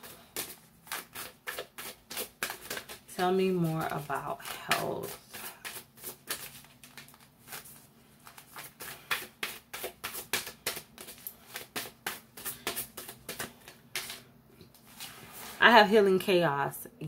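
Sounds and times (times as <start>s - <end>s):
cards being shuffled: 0.0s - 3.1s, 4.4s - 15.5s.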